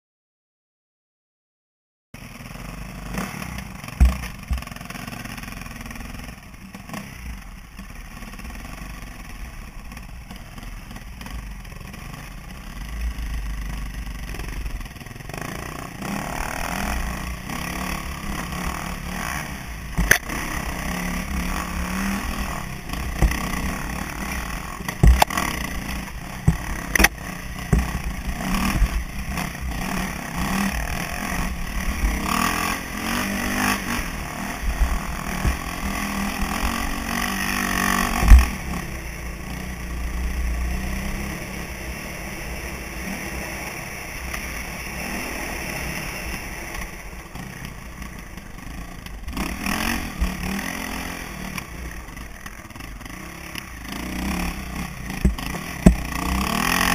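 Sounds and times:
motorcycle engine revving: 2.2 - 56.9
sharp knocks: 4.0 - 4.8, 24.9 - 25.4, 26.4 - 28.0, 55.2 - 56.0.

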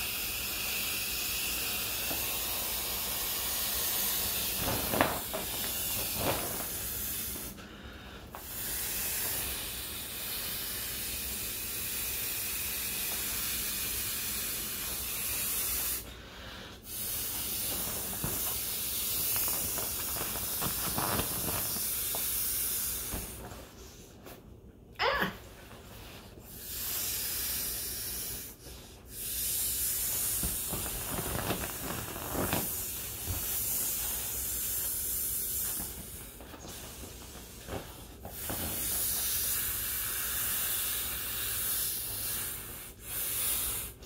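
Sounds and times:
breath blown into inflatable valve: 0.0 - 23.4, 26.5 - 31.1, 32.6 - 36.8, 38.3 - 44.0
plastic crinkling: 17.7 - 22.0, 30.4 - 33.4.

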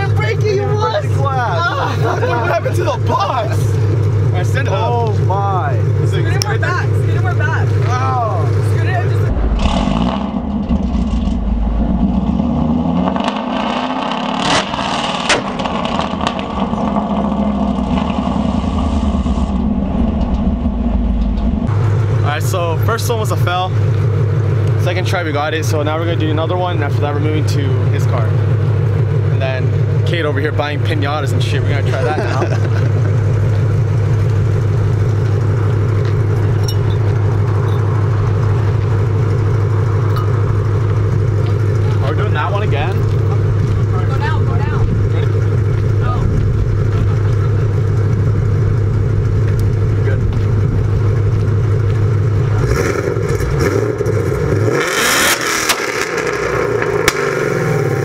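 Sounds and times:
exhaust cracks: 0.0 - 58.0
car engine revving hard: 8.6 - 23.6, 30.0 - 58.0.

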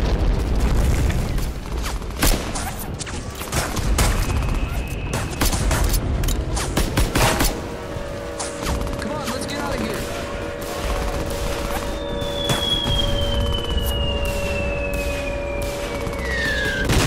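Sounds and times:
explosions rumbling: 0.0 - 1.7, 10.8 - 17.0
steady humming tone: 1.4 - 17.0.

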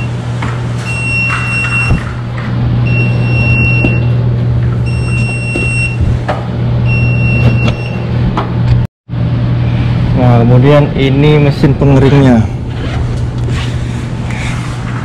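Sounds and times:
laundry machine electronic beep: 0.0 - 0.2, 0.8 - 2.1, 2.8 - 4.2, 4.8 - 6.1, 6.8 - 8.2
low hum of machines: 0.0 - 15.0.

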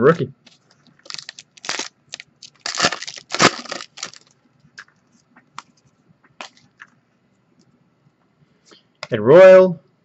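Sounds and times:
foil wrapper crinkling: 0.8 - 4.4.

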